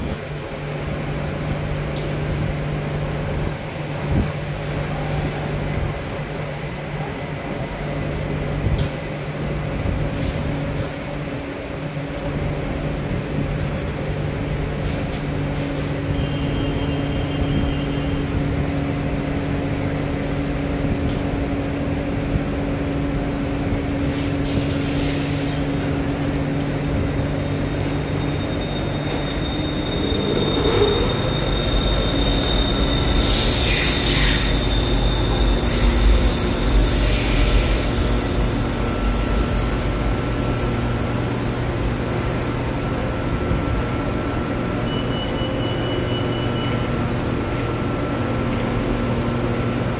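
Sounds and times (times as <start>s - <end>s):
train rumbling on rails: 0.0s - 49.9s
electric train hum: 8.2s - 45.4s
wheel squeal: 27.2s - 42.7s, 44.8s - 47.7s.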